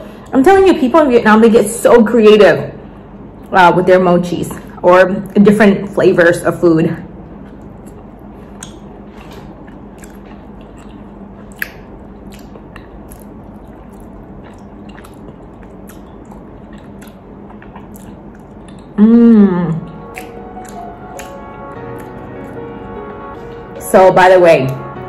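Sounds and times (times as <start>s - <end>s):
steady low hum: 0.0s - 25.0s
person chewing with wet clicks: 7.2s - 19.0s, 19.7s - 23.5s.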